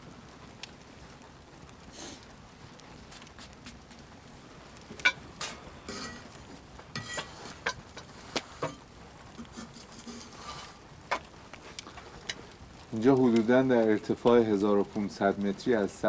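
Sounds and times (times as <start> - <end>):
metal utensils scraping cookware: 5.0 - 6.4, 7.0 - 8.8, 9.4 - 11.3.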